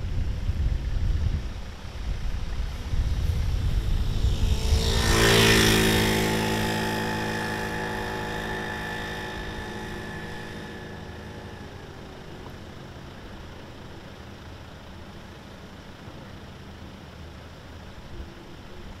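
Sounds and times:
wind rumble on microphone: 0:00.0 - 0:11.6
motor scooter passing by: 0:02.4 - 0:13.0.

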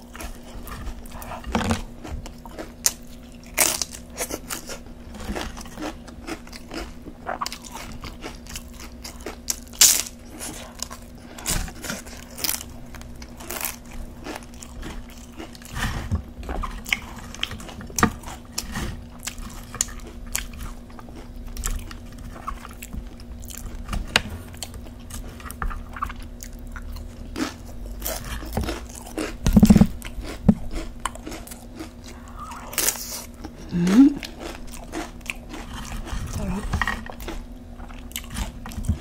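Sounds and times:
chewing crunchy chips: 0:00.0 - 0:39.0.

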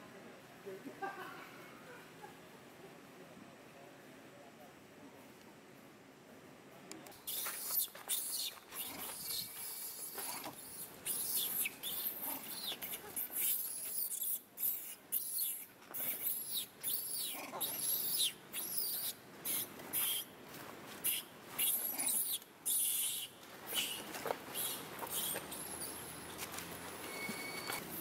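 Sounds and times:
baby monkey screaming and squealing: 0:07.2 - 0:20.3, 0:21.0 - 0:26.3.

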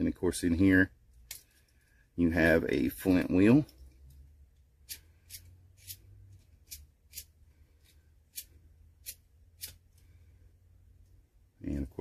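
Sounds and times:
lighter flint wheel rasping: 0:04.8 - 0:06.0, 0:06.6 - 0:07.3, 0:08.3 - 0:09.8.

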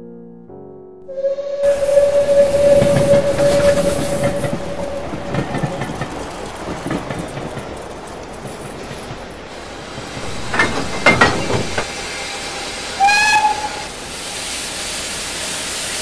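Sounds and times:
train whistle: 0:01.1 - 0:07.0, 0:10.2 - 0:16.0
train wheels clattering: 0:01.6 - 0:12.1.

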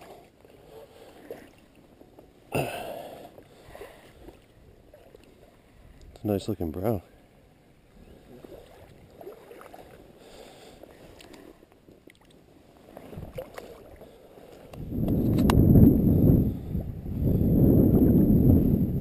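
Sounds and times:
water sloshing and splashing: 0:00.0 - 0:06.2, 0:07.9 - 0:15.7.

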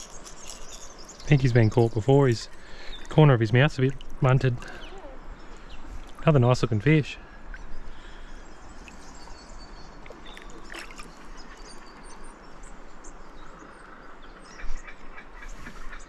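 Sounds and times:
river water hissing: 0:00.0 - 0:06.6.

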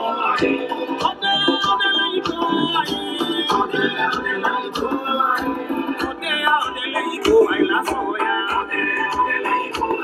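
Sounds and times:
dance music with singing: 0:00.0 - 0:10.0
drum beat: 0:01.0 - 0:08.1.

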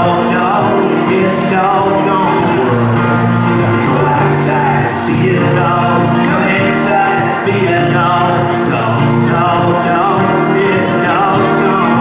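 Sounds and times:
acoustic guitars strummed: 0:00.0 - 0:12.0
man singing: 0:00.0 - 0:12.0.

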